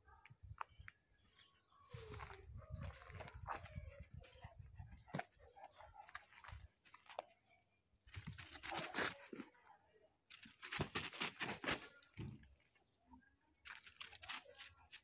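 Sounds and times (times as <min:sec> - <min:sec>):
paws scraping on gravel: 0:08.1 - 0:09.4, 0:10.3 - 0:12.2.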